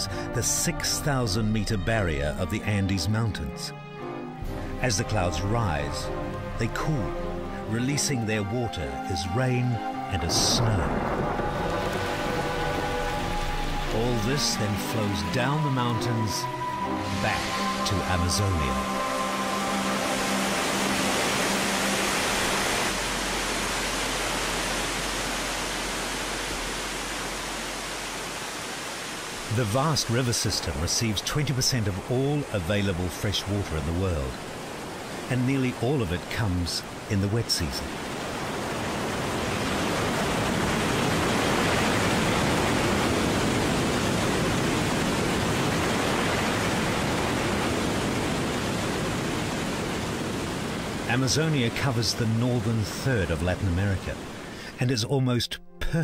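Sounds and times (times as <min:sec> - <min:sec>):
held low musical note: 0:00.0 - 0:27.7
waterfall rushing: 0:04.2 - 0:54.9.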